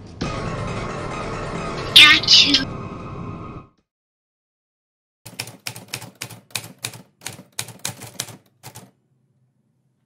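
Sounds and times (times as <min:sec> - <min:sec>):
typewriter key clacks: 0:05.3 - 0:08.9.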